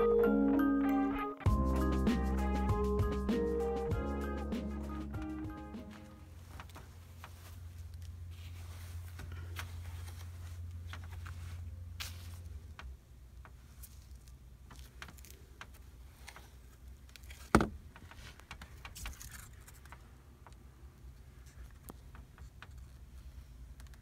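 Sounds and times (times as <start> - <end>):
insulation rustling: 5.1 - 24.0.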